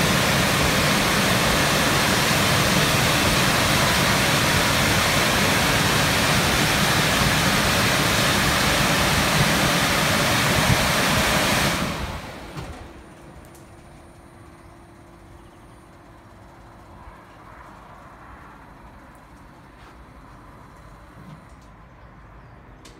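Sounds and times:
car wash dryer blowers: 0:00.0 - 0:14.3.

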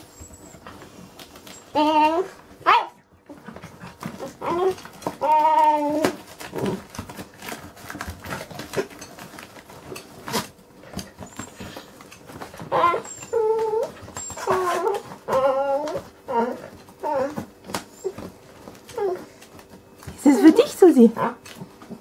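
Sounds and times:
small dog whining: 0:00.0 - 0:03.4, 0:04.1 - 0:06.8, 0:12.6 - 0:19.6
teeth and paws scratching cardboard: 0:00.1 - 0:22.0.

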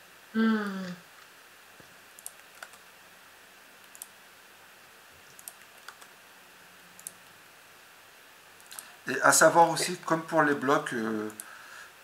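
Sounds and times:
faint room hiss: 0:00.0 - 0:12.0
computer mouse clicks: 0:02.2 - 0:02.8, 0:03.8 - 0:04.2, 0:05.3 - 0:06.1, 0:07.0 - 0:07.3, 0:08.6 - 0:08.9, 0:11.3 - 0:11.5.

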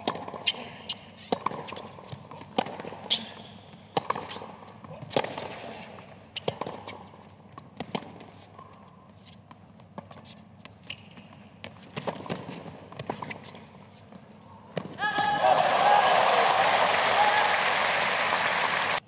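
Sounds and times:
tennis racket strikes: 0:00.0 - 0:05.8
tennis ball bouncing: 0:00.0 - 0:15.3.

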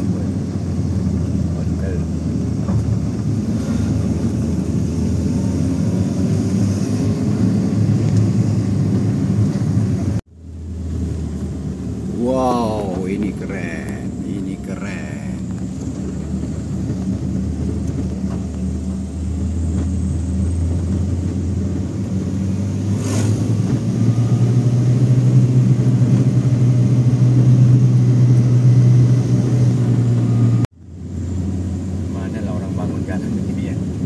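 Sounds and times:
car engine while driving: 0:00.0 - 0:34.0.

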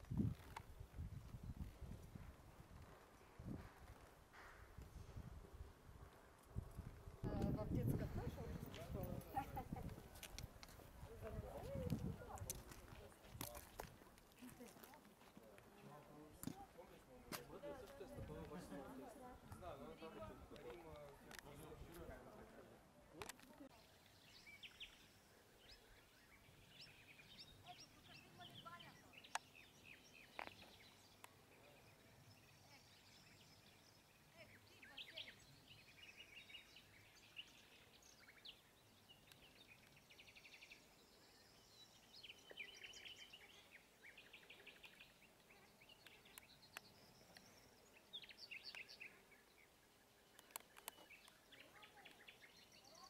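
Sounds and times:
songbirds singing: 0:23.4 - 0:53.0.

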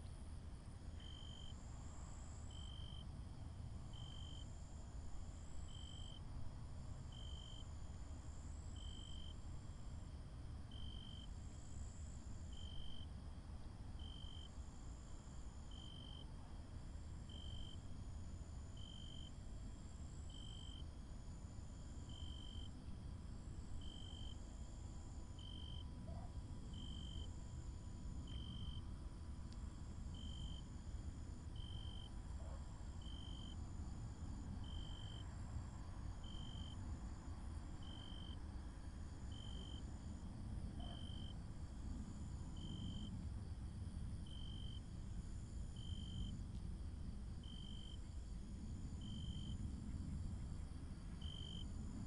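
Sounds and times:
insects chirping: 0:14.0 - 0:16.3, 0:17.2 - 0:52.0.

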